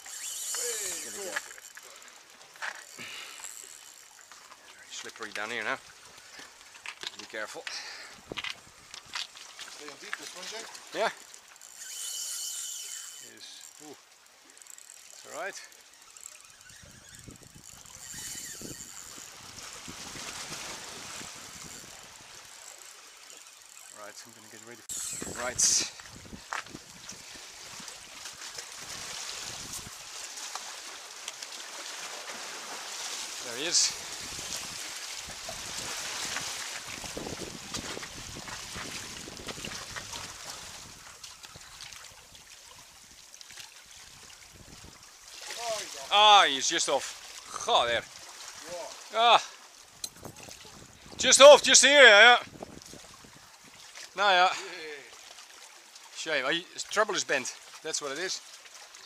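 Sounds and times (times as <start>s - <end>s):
sea water washing against rocks: 7.3s - 11.3s, 18.0s - 22.8s, 24.8s - 42.1s, 44.1s - 55.1s
waves washing over rocks: 28.8s - 40.9s, 45.4s - 49.4s.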